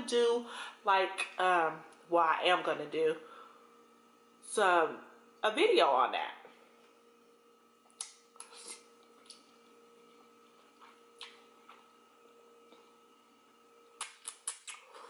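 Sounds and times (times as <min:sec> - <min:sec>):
electrical hum: 0:00.0 - 0:15.0
mouth smacks and slurps: 0:14.0 - 0:15.0.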